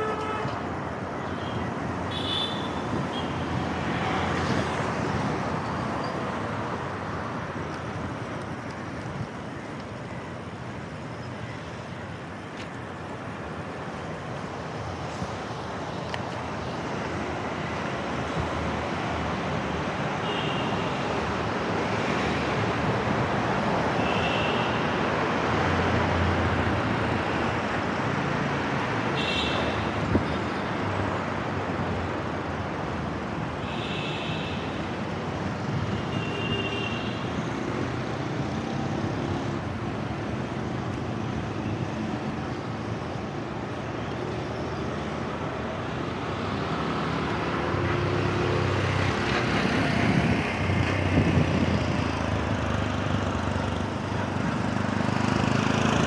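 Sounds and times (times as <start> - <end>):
road and wind noise: 0.0 - 56.0
motor vehicles running: 45.1 - 56.0.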